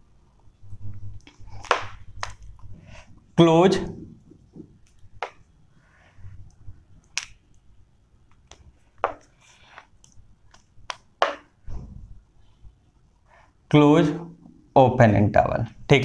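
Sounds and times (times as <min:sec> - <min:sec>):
marker clicking on whiteboard: 0:08.3 - 0:11.6.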